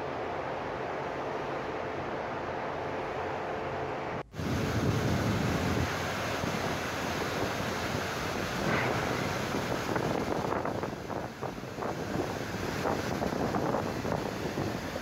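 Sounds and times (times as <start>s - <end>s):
sea waves: 4.3s - 13.2s
wind buffeting microphone: 4.3s - 15.0s.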